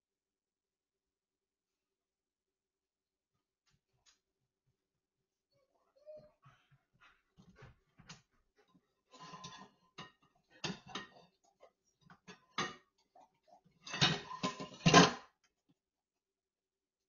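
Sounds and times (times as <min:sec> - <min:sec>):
dishes clattering in metal sink: 0:09.2 - 0:11.3, 0:12.1 - 0:12.9, 0:13.8 - 0:15.3.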